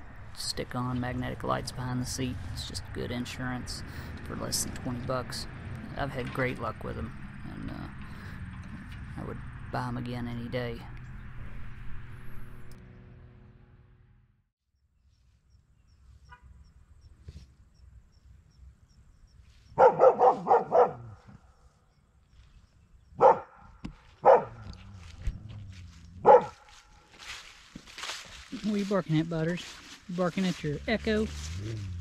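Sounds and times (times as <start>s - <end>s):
dog barking: 19.8s - 21.2s, 23.2s - 24.7s, 26.2s - 26.7s.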